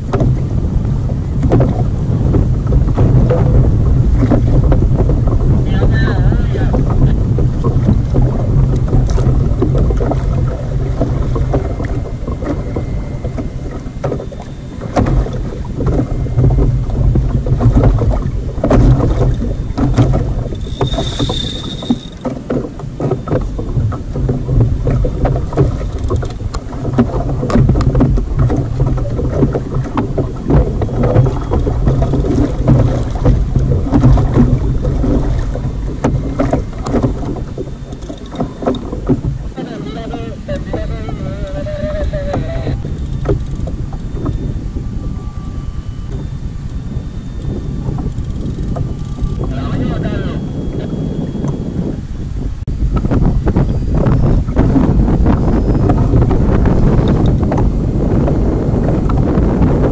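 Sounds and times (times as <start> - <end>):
water slapping boat hull: 0.0 - 59.9
wind rumbling on microphone: 0.0 - 59.9
fishing reel knocks and clicks: 20.6 - 22.2.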